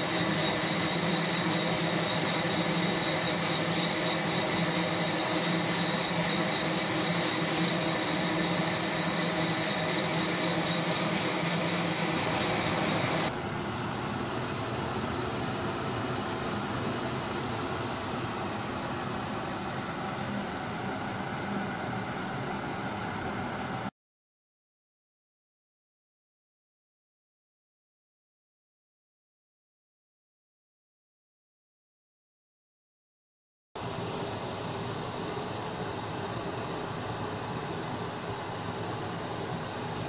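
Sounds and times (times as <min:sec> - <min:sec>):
coffee roaster blower whirring: 0:00.0 - 0:23.9, 0:33.8 - 0:40.0.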